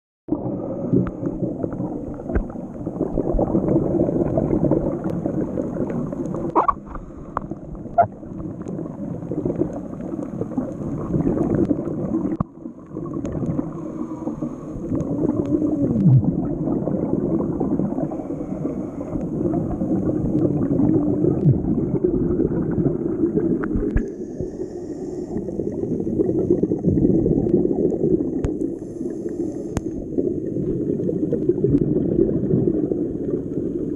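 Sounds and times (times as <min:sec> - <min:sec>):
underwater breathing bubbles: 0:00.3 - 0:33.9.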